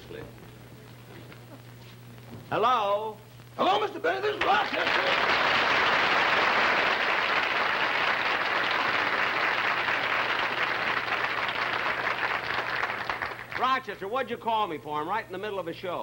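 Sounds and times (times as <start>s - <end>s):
audience applauding: 4.3s - 13.8s.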